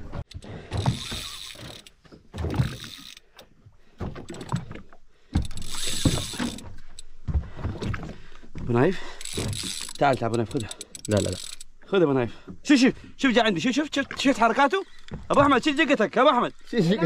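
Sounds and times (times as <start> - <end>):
fishing reel drag buzzing: 0.8 - 3.3, 5.4 - 7.0, 9.2 - 11.7.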